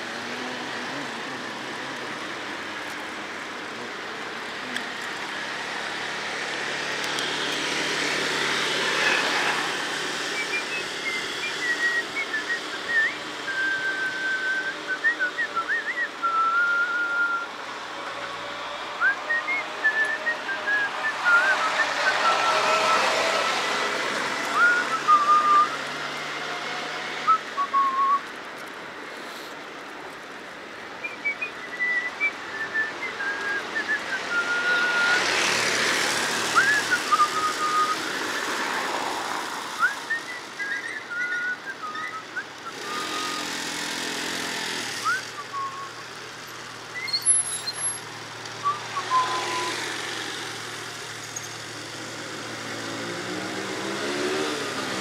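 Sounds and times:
person whistling a tune: 10.3s - 17.5s, 19.0s - 22.5s, 24.6s - 25.8s, 27.3s - 28.2s, 31.0s - 35.2s, 36.5s - 38.5s, 39.8s - 43.5s, 45.0s - 46.0s, 48.6s - 49.8s.

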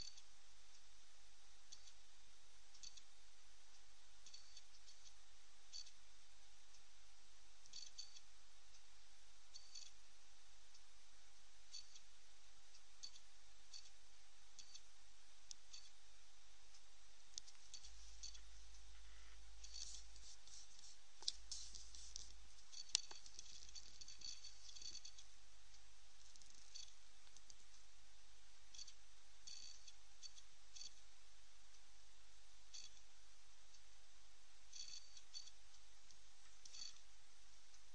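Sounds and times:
faint irregular clicking: 0.0s - 0.9s, 1.7s - 2.0s, 2.7s - 3.2s, 3.8s - 6.0s, 7.6s - 8.9s, 9.5s - 10.0s, 11.7s - 12.2s, 12.8s - 16.0s, 16.7s - 27.9s, 28.7s - 31.1s, 32.7s - 33.1s, 34.7s - 37.9s
steady low hiss: 0.0s - 37.9s.

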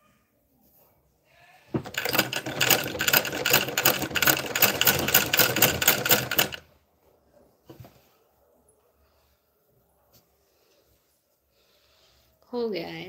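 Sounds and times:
sewing machine stitching: 1.8s - 6.7s.

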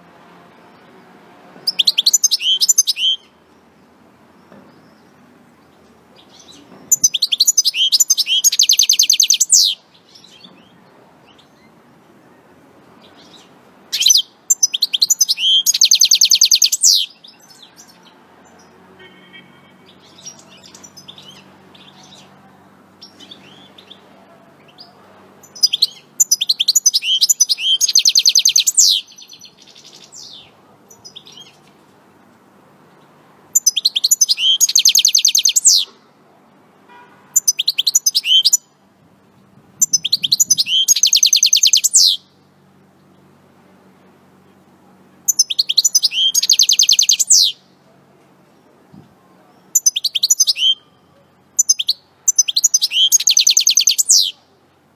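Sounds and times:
finch singing trilled notes: 1.7s - 3.4s, 6.2s - 11.7s, 13.1s - 17.9s, 25.4s - 31.6s, 33.6s - 35.9s, 37.4s - 38.7s, 39.8s - 42.4s, 45.3s - 47.6s, 49.6s - 54.4s
soft bird chirps: 4.4s - 11.8s, 13.0s - 22.4s, 23.0s - 31.7s, 32.9s - 36.1s, 39.8s - 42.4s, 45.3s - 47.6s, 48.5s - 54.5s.

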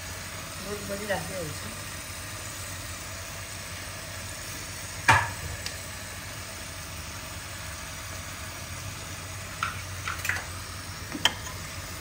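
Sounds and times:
knock on pressure cooker pot: 5.1s - 5.4s.

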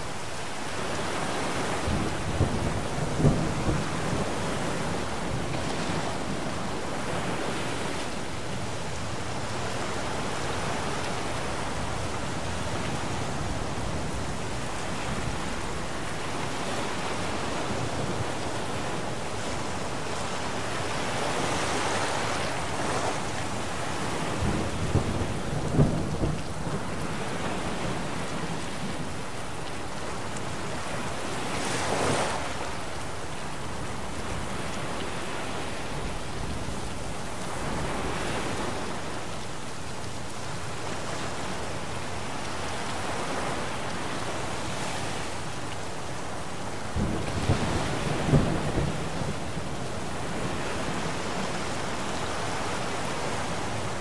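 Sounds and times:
heavy rain: 0.0s - 54.0s
thunder rumbling: 24.0s - 29.2s, 46.9s - 51.5s.

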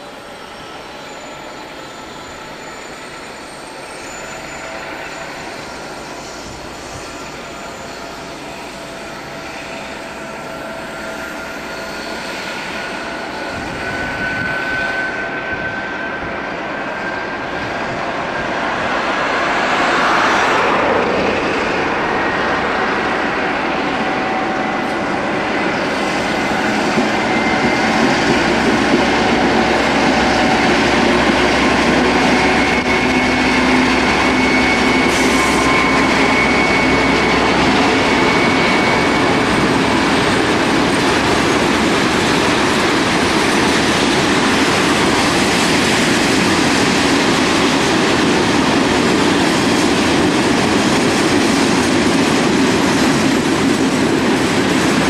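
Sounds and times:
high wheel squeal: 0.0s - 51.0s
train wheels rumbling on track: 0.0s - 55.0s
diesel locomotives under load: 20.5s - 55.0s.

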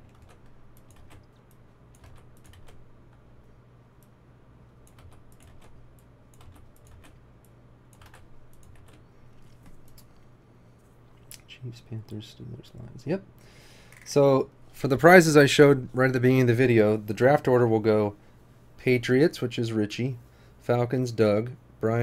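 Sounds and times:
typing on computer keyboard: 0.0s - 3.2s, 4.8s - 7.2s, 7.9s - 10.0s
low steady hum: 0.0s - 22.0s.

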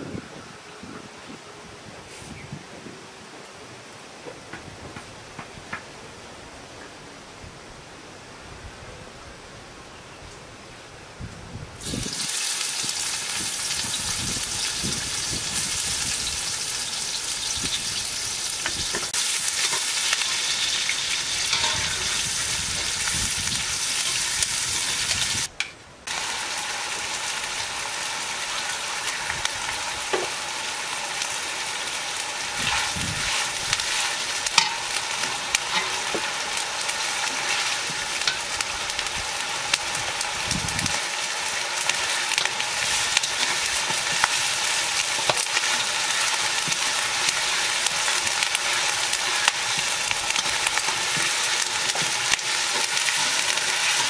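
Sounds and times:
onions sizzling in hot oil: 11.8s - 54.0s.

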